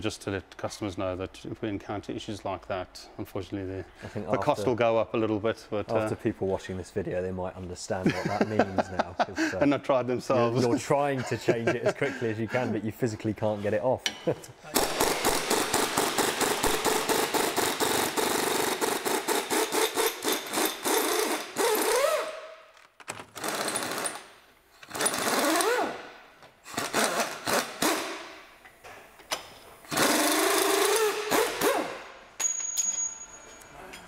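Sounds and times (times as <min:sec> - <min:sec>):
air ratchet rattling: 0:23.4 - 0:25.7, 0:29.9 - 0:31.8.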